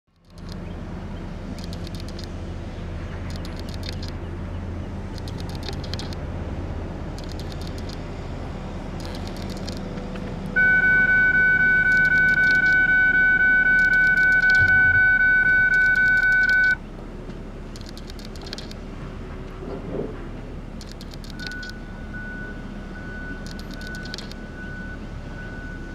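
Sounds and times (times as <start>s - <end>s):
continuous low rumble: 0.1s - 25.9s
loud high-pitched tone: 10.6s - 16.8s.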